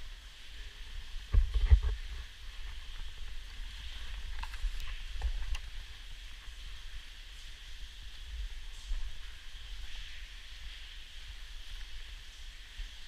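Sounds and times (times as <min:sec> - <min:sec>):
steady hiss: 0:00.0 - 0:13.0
bumps and clicks of rope gear: 0:04.2 - 0:05.7.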